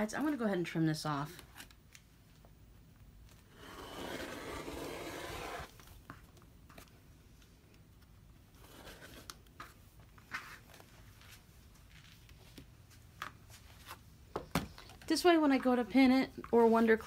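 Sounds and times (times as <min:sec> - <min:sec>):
rotary cutter slicing fabric: 0:03.5 - 0:05.7.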